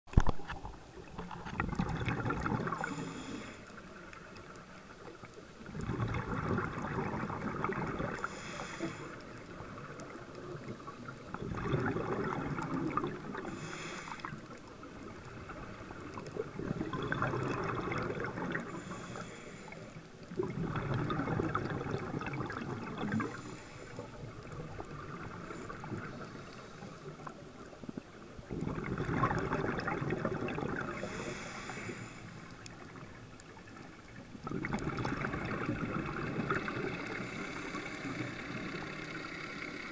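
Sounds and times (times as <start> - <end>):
bubbling gurgling underwater: 0.1 - 3.3, 5.1 - 8.4, 9.2 - 13.7, 14.3 - 18.9, 20.2 - 31.3, 32.6 - 39.9
diver breathing through regulator: 2.7 - 4.0, 8.1 - 9.5, 13.3 - 14.6, 18.6 - 20.1, 23.1 - 24.3, 30.9 - 32.5, 36.5 - 39.9.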